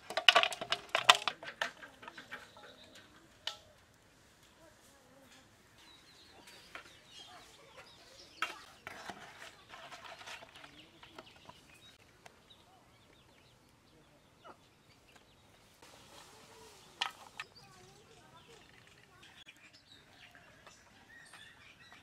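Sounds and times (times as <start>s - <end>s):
chickens clucking: 14.3s - 15.3s.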